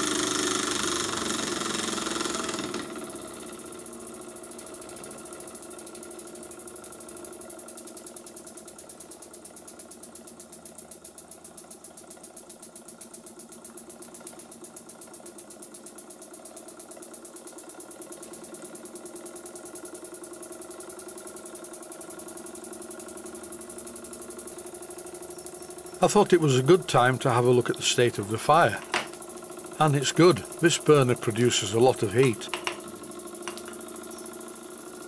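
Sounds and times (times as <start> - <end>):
model steam engine beating: 26.0 - 29.0, 29.6 - 34.1.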